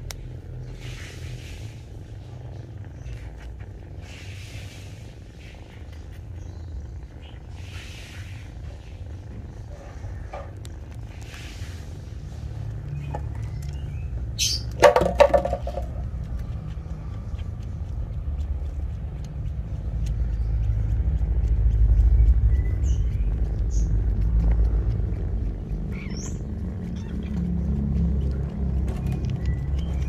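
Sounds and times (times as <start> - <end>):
kittens purring: 0.0 - 30.0
high bird chirps: 12.9 - 14.8, 25.9 - 26.4.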